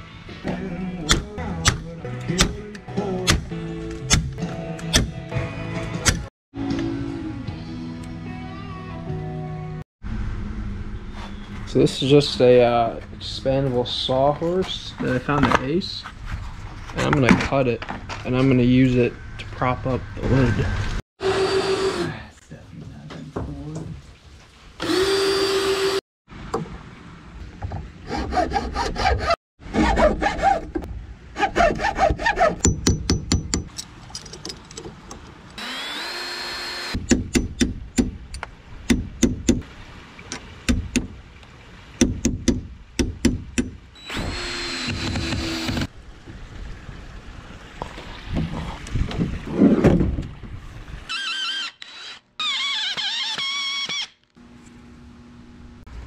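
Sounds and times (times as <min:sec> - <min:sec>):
cordless drill spinning: 0:24.8 - 0:26.0, 0:35.6 - 0:37.0, 0:44.0 - 0:45.9, 0:51.1 - 0:54.2
sawing wood: 0:28.0 - 0:32.7, 0:35.6 - 0:37.5
hammering on wood: 0:42.0 - 0:43.8.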